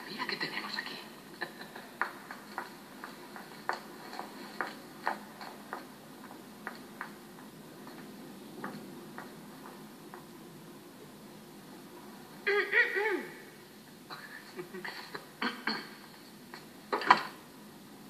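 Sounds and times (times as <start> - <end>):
footsteps on hard floor: 2.0 - 10.3.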